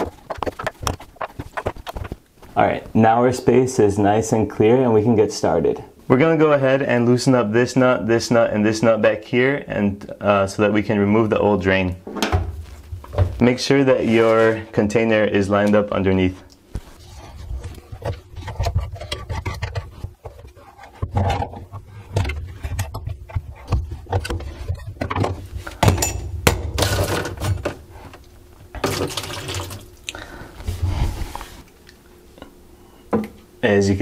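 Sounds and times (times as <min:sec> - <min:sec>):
water pouring into plastic container: 0:28.8 - 0:29.9.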